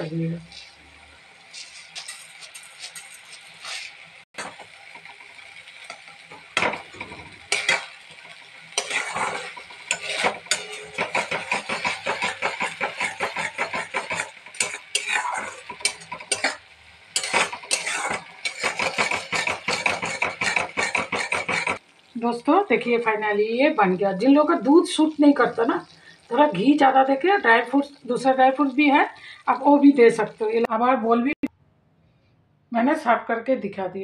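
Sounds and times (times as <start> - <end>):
syrup sizzling: 0.0 - 30.7
metal spatula scraping a wok: 1.4 - 21.8.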